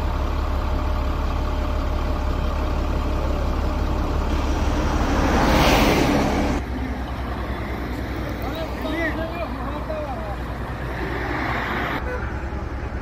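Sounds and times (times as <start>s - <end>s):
diesel engine running: 0.0s - 13.0s
loud rushing noise: 4.3s - 6.6s.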